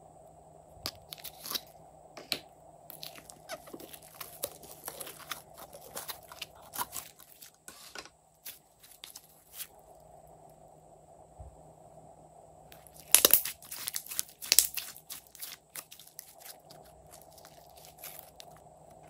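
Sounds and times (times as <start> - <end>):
sticky slime popping: 2.9 - 7.5, 12.8 - 18.6
plastic pot crackling and clicking: 12.8 - 19.0.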